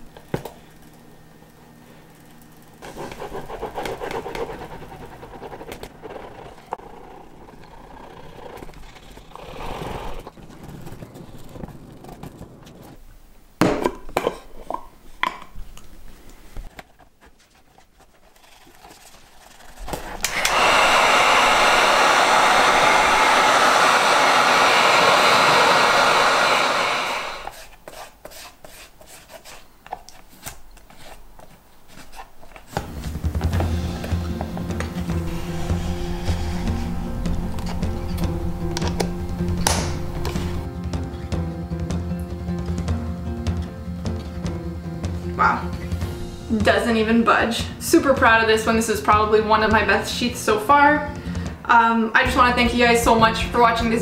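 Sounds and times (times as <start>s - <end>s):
hot-air blower running: 0.0s - 7.6s, 19.9s - 27.6s, 32.7s - 41.0s
rubbing leather by hand: 2.8s - 13.0s.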